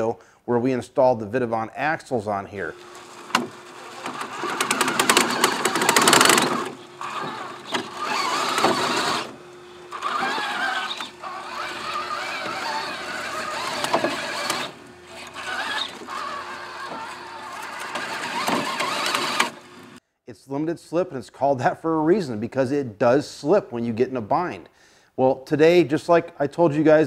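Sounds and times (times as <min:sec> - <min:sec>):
toy car motor and gears whining: 0:02.6 - 0:20.0
tyres scraping and knocking on rock: 0:02.8 - 0:19.6.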